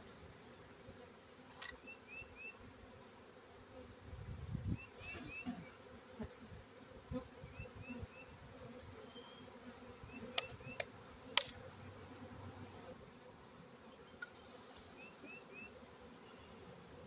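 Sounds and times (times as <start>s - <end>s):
bees buzzing: 0.3s - 17.0s.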